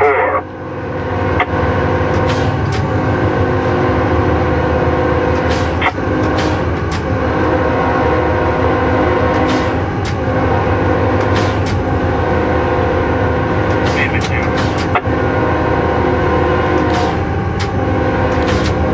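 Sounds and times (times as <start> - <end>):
locomotive engine drone: 0.0 - 18.9
sharp clicks and knocks: 2.1 - 3.0, 5.3 - 7.2, 9.2 - 10.2, 11.2 - 11.9, 13.6 - 15.1, 16.7 - 18.9.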